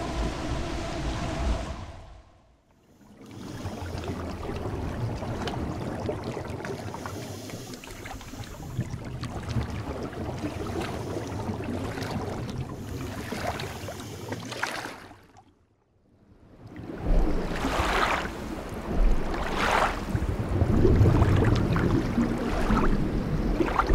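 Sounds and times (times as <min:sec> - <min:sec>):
ocean waves heard underwater: 0:00.0 - 0:23.9.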